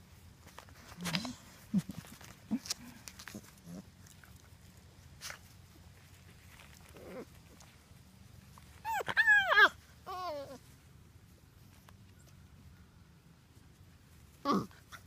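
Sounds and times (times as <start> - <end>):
puppy whining: 6.8 - 7.7, 8.7 - 10.7, 14.4 - 15.0
puppy yelping: 8.8 - 10.6.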